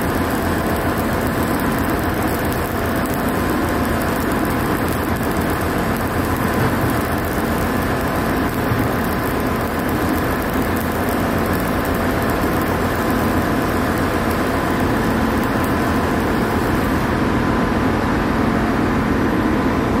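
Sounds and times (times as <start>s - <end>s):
electric arc welding crackle: 0.0s - 17.3s
heavy machinery drone: 0.0s - 20.0s.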